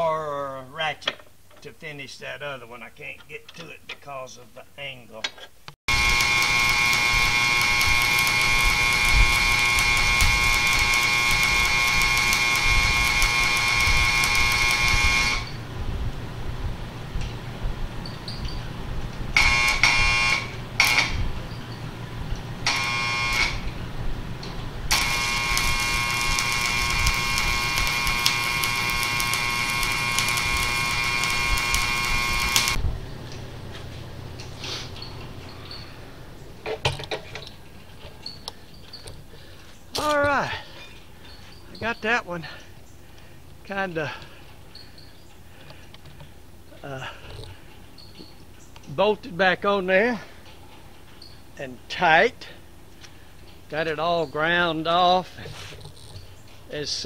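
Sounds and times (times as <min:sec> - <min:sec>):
welding arc buzzing: 0:05.9 - 0:37.6, 0:39.8 - 0:40.6.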